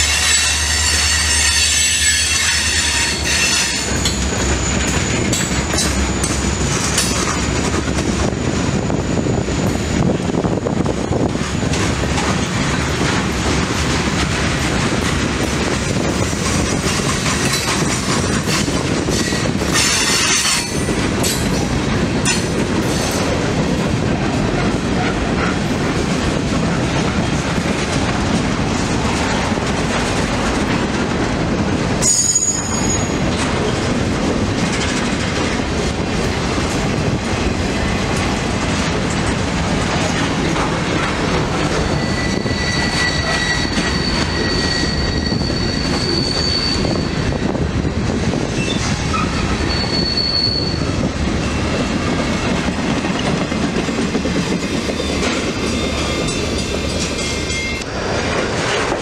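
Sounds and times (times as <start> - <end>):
high metallic squeals: 0.0 - 7.1, 32.0 - 33.2, 41.7 - 47.5, 48.6 - 51.0
train wheels rumbling on rail: 0.0 - 59.0.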